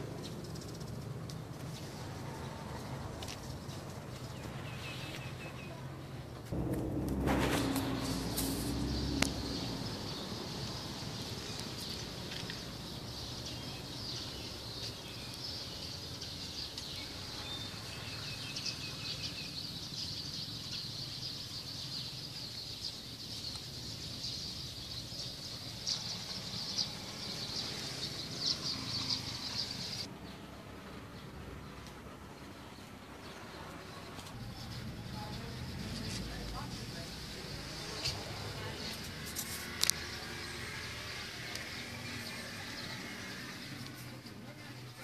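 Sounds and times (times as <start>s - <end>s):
small birds chirping: 0.0s - 6.5s, 8.4s - 30.4s
low background rumble: 6.5s - 10.2s.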